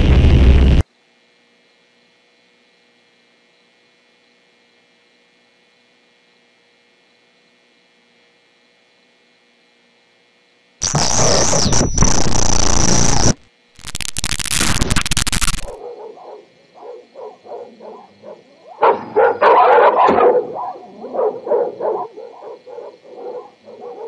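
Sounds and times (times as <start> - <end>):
harsh static noise: 0.0 - 0.8, 10.8 - 15.8.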